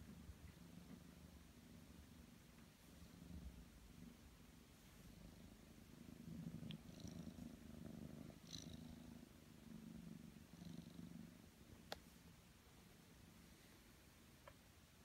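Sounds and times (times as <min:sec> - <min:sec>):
kitten purring: 0:00.0 - 0:11.9.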